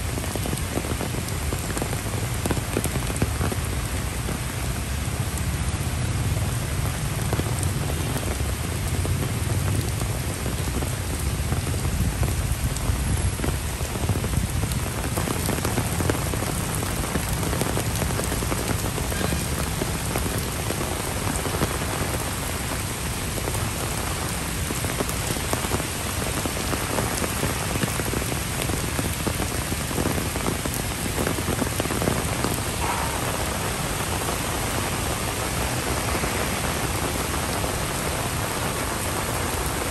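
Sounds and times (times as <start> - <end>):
heavy rain falling: 0.0 - 39.9.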